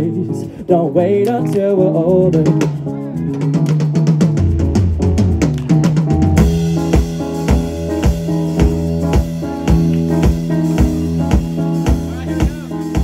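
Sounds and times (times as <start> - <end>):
live band playing: 0.0 - 13.0
drum kit with cymbals: 1.8 - 13.0.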